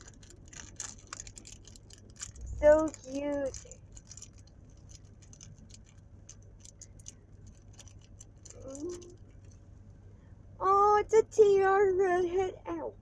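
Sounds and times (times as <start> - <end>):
plastic packaging crinkling: 0.0 - 9.7
person humming: 8.6 - 9.2.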